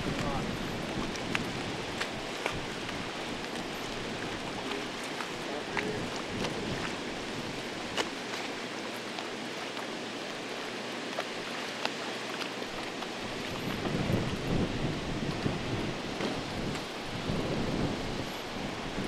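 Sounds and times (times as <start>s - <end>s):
wind buffeting microphone: 0.0s - 8.2s, 12.7s - 19.0s
water rushing through dam gate: 0.0s - 19.0s.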